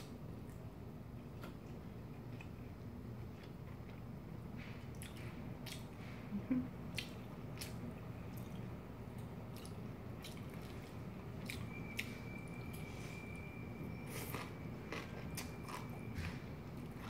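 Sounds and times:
wet chewing: 0:06.9 - 0:12.1.

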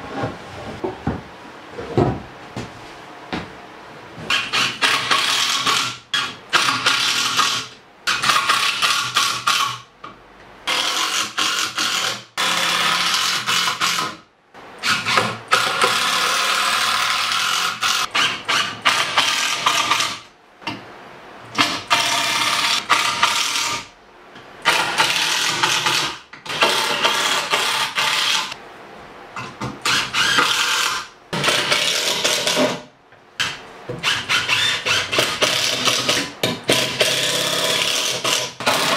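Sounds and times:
impact driver driving screws: 0:29.8 - 0:32.8, 0:33.4 - 0:38.9.

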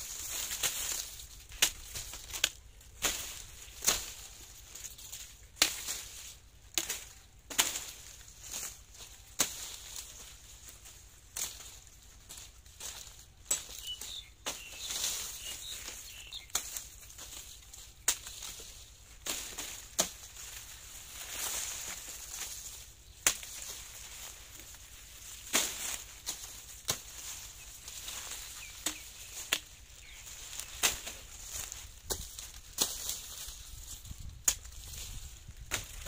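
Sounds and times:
dry leaves rustling: 0:00.0 - 0:36.0
machete chopping sugarcane: 0:00.3 - 0:04.3, 0:05.6 - 0:08.8, 0:09.4 - 0:10.0, 0:12.3 - 0:20.5, 0:23.2 - 0:23.8, 0:25.4 - 0:27.4, 0:28.0 - 0:29.7, 0:30.5 - 0:33.3.

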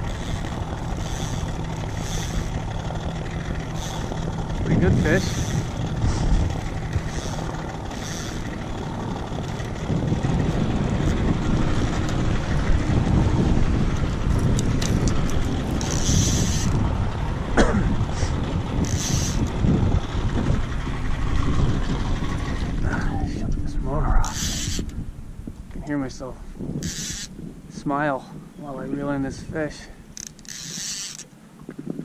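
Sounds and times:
high-pitched rattles: 0:00.0 - 0:12.5, 0:14.4 - 0:16.8, 0:18.7 - 0:22.6, 0:24.2 - 0:24.9, 0:26.8 - 0:27.3, 0:30.2 - 0:31.3
low rumble: 0:00.0 - 0:30.2
wind on microphone: 0:00.0 - 0:32.0.

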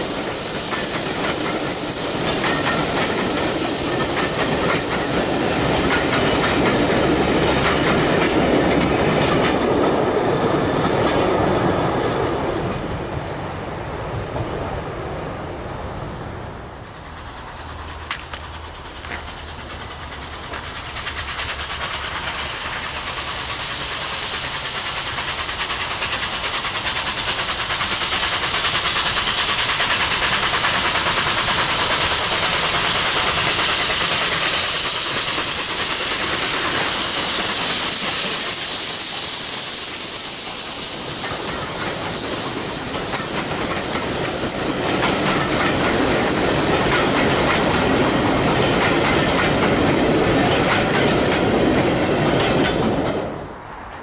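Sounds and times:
steam locomotive hiss: 0:00.0 - 0:14.0, 0:15.8 - 0:54.0
train wheels clattering on rails: 0:00.0 - 0:14.7, 0:16.7 - 0:54.0.

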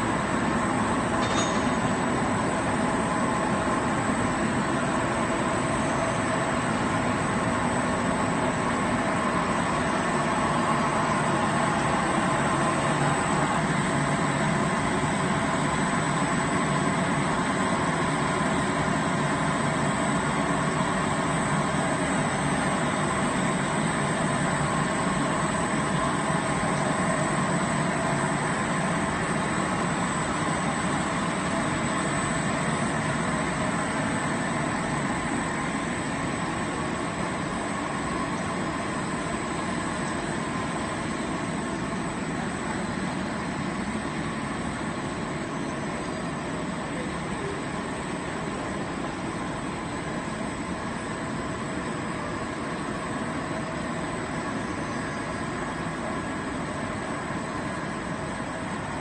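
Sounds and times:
machine hum and whir: 0:00.0 - 0:59.0.

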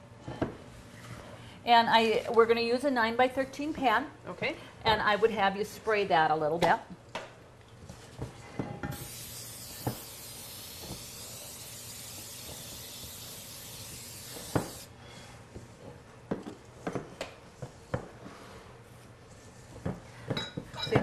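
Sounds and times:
aerosol spray hissing: 0:08.9 - 0:14.9.

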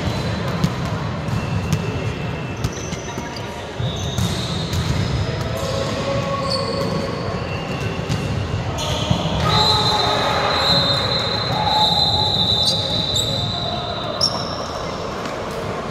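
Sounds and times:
volleyballs hit and bouncing: 0:00.0 - 0:09.5.

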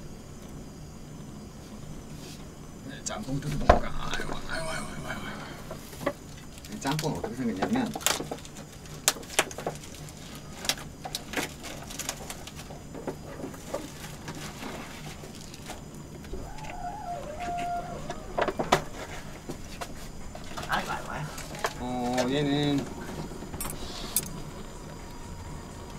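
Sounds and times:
steady low hum: 0:00.0 - 0:07.9, 0:18.2 - 0:25.9.

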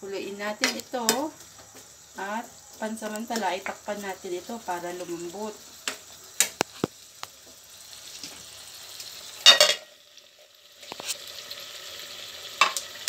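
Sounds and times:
vegetables cooking in broth: 0:00.0 - 0:13.0
lid clattering onto pan: 0:09.4 - 0:09.9.

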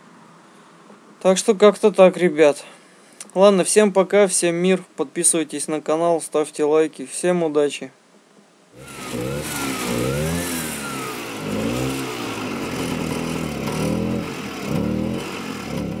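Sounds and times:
engine revving: 0:08.8 - 0:16.0.

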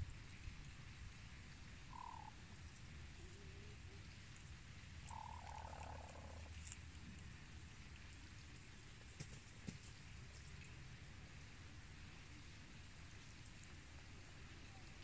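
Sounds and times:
chickens croaky calls: 0:01.9 - 0:02.4, 0:05.1 - 0:06.6.

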